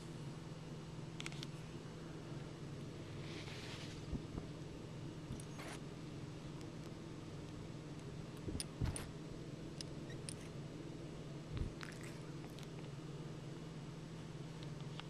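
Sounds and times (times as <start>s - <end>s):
steady low hum: 0.0s - 15.0s
cat fur brushing against camera: 3.2s - 4.1s.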